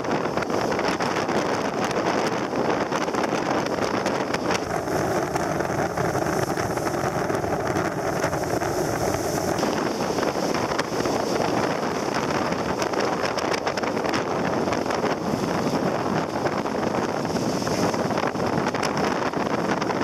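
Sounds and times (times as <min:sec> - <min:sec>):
water rushing around a yacht: 0:00.0 - 0:20.0
wind buffeting the microphone: 0:00.0 - 0:20.0.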